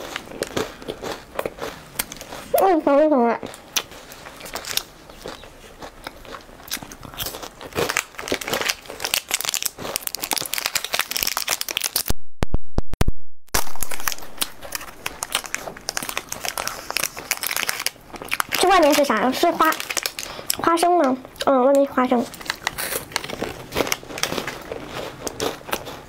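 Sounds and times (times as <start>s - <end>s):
chewing crunchy wafer: 0.0s - 12.1s, 13.6s - 26.0s
wrapper crinkling and tearing: 7.2s - 12.2s, 13.6s - 20.8s, 22.2s - 26.0s.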